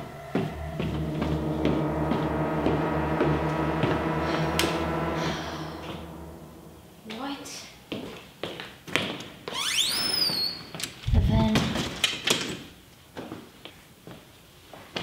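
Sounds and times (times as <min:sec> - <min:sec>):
throbbing bass pulse: 0:00.0 - 0:07.4
sharp musical hit: 0:00.0 - 0:07.7
low horror drone: 0:00.0 - 0:07.8.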